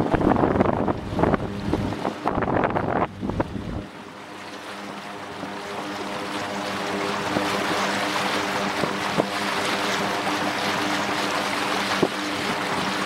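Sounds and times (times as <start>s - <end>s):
wind noise: 0.0s - 3.9s
floatplane engine droning: 0.0s - 13.0s.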